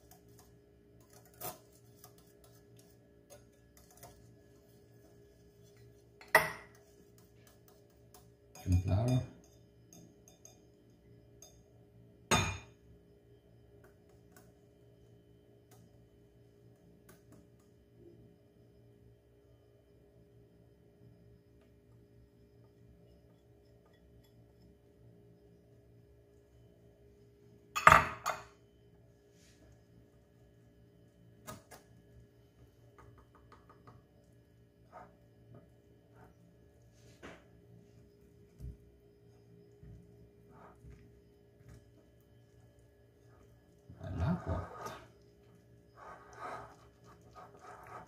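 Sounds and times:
whisk clinking against glass bowl: 6.2s - 11.7s
glass clinking against glass bowl: 8.5s - 11.7s, 12.3s - 12.8s, 27.8s - 28.6s
glass bowl clattering: 12.3s - 12.8s.

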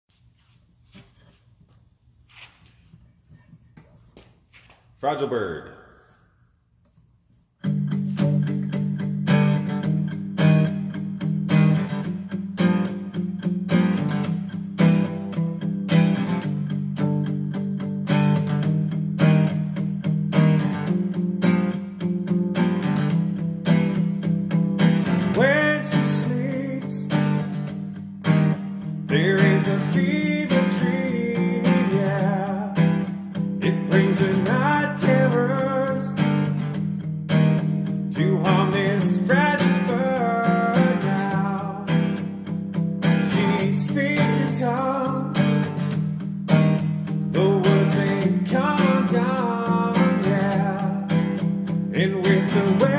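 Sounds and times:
acoustic guitar strumming: 7.6s - 52.9s
man singing: 25.2s - 27.4s, 29.1s - 36.5s, 38.1s - 45.7s, 47.2s - 52.9s.

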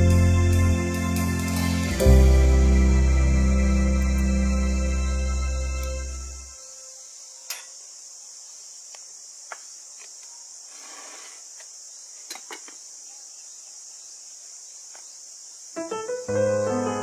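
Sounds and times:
high-pitched insect chorus: 0.0s - 17.0s
short rustle: 10.7s - 11.6s.

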